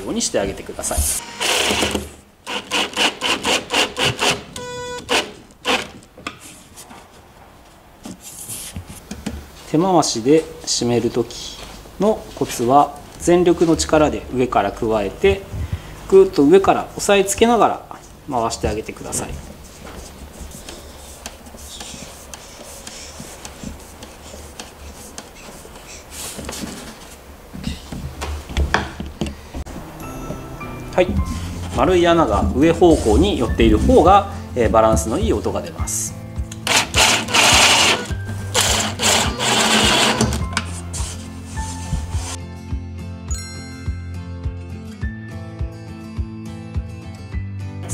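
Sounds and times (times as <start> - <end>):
screwdriver driving screw into wood: 1.4 - 6.0, 36.6 - 40.5
impact driver hammering pulses: 36.6 - 40.4.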